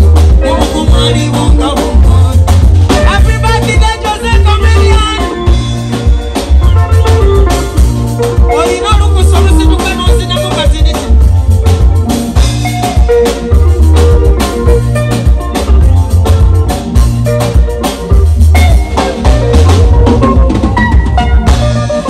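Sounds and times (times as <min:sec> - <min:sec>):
drum kit beat: 0:00.0 - 0:22.0
electric bass line: 0:00.0 - 0:22.0
live band playing: 0:00.0 - 0:22.0.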